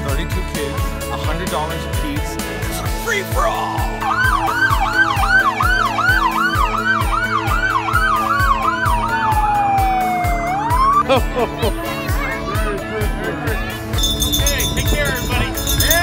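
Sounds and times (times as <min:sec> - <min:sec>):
background music with beat: 0:00.0 - 0:16.0
police siren wail: 0:03.6 - 0:11.3
police siren yelp: 0:03.6 - 0:11.3.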